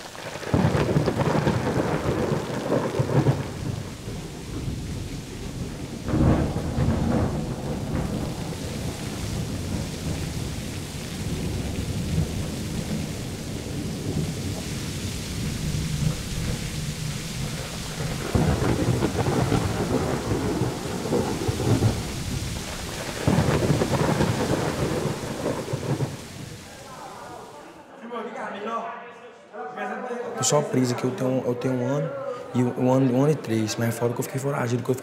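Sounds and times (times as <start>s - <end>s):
low rolling thunder: 0.0s - 27.5s
steady rain: 0.0s - 27.9s.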